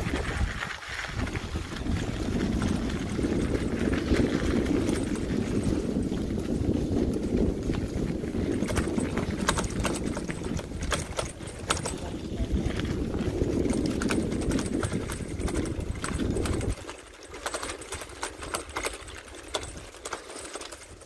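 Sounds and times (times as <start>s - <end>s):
wind buffeting microphone: 0.0s - 20.0s
tyres rumbling over rough path: 0.0s - 21.0s
sharp rattling clicks: 8.5s - 12.2s, 13.6s - 21.0s.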